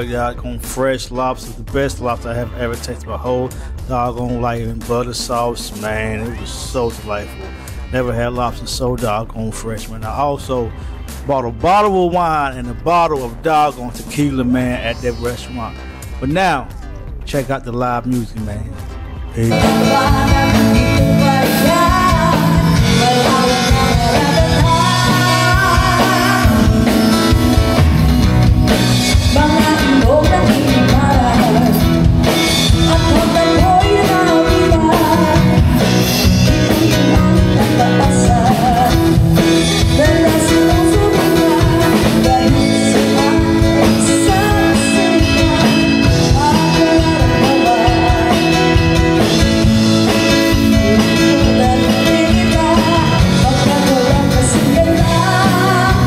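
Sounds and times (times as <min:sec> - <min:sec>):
drum kit: 0:00.0 - 0:56.0
keyboard: 0:00.0 - 0:56.0
acoustic guitar: 0:18.8 - 0:56.0
woman singing into microphone: 0:19.5 - 0:27.3, 0:29.2 - 0:32.1, 0:32.7 - 0:49.5, 0:50.2 - 0:56.0.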